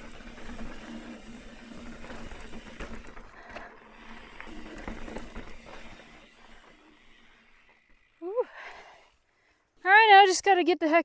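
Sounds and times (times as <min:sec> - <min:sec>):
bike knocking and rattling: 0:00.0 - 0:08.9
rear hub buzzing: 0:00.0 - 0:10.1
bike tyres on dirt and rock: 0:00.0 - 0:11.0.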